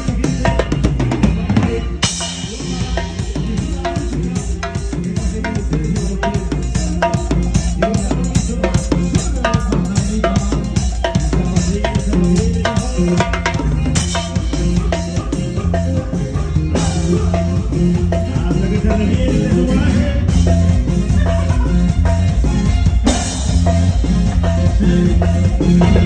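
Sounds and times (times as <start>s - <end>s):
drum kit beat: 0.0s - 26.0s
live band music: 0.0s - 26.0s.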